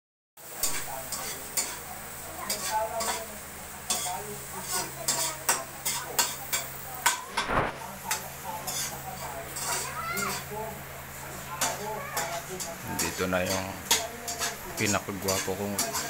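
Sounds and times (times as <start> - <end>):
food sizzling in hot oil: 0.4 - 16.0
utensil scraping in a wok: 0.4 - 16.0
short rush of noise: 7.3 - 7.8.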